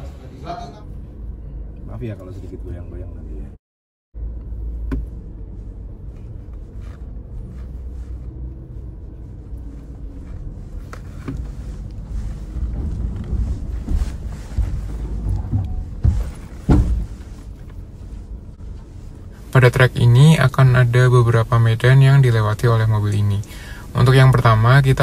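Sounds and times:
vehicle cabin low rumble: 0:00.0 - 0:03.6, 0:04.2 - 0:25.0
short knocks: 0:12.7 - 0:17.3
loud clunk: 0:14.6 - 0:17.3.

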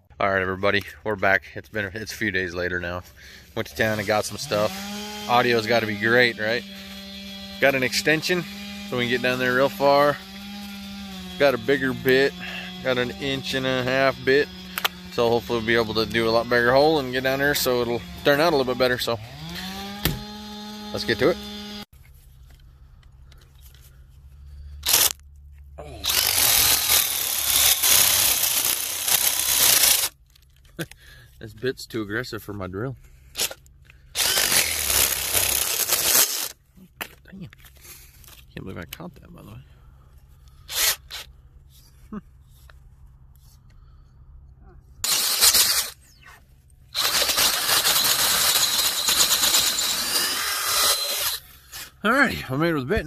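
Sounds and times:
wood chips tearing out: 0:03.7 - 0:21.4, 0:24.8 - 0:25.2, 0:26.0 - 0:30.2, 0:34.2 - 0:36.6, 0:45.0 - 0:46.2, 0:46.9 - 0:52.0
power drill drilling into wood: 0:04.1 - 0:21.9, 0:24.8 - 0:25.2, 0:26.0 - 0:30.1, 0:34.2 - 0:36.6, 0:40.7 - 0:41.3, 0:45.0 - 0:46.0, 0:47.0 - 0:51.5.

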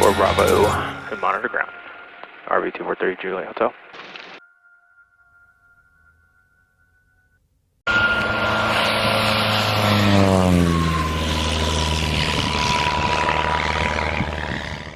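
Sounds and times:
propeller airplane flying past: 0:07.9 - 0:14.9.

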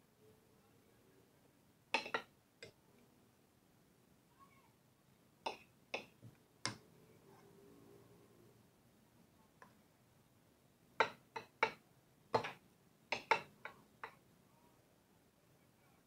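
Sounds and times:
hard objects clicking and knocking: 0:11.0 - 0:14.2.

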